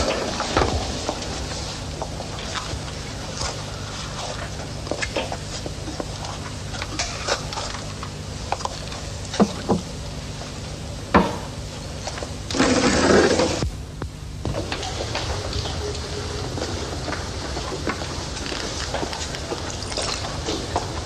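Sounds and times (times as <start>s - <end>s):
low hum and hiss: 0.0s - 21.0s
louder fuller noise: 11.8s - 21.0s.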